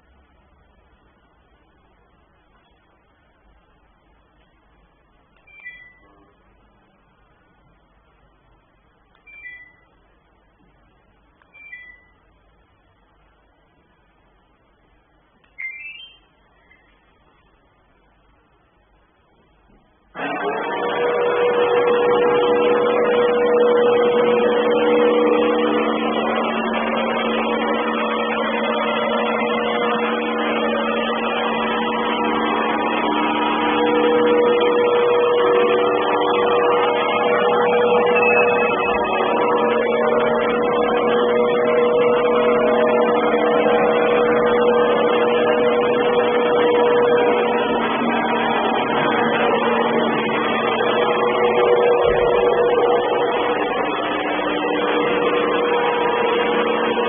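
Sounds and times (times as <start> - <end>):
robot vacuum cleaner whirring: 20.2 - 57.0.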